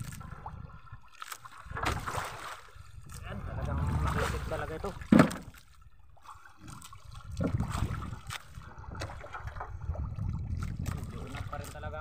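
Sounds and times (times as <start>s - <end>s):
water lapping against boat hull: 0.0s - 12.0s
light knocks on boat: 5.0s - 5.6s.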